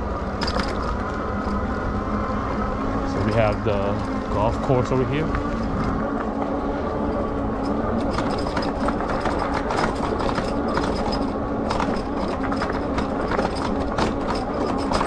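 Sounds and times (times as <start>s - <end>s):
electric bike rattling over bumps: 0.0s - 15.0s.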